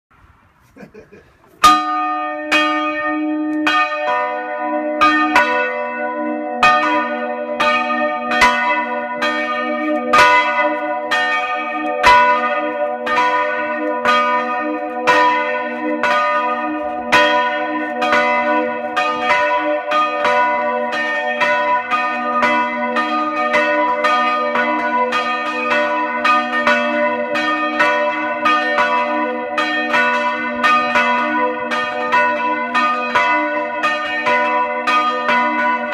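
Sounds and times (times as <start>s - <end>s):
church bells chiming: 1.6s - 35.9s.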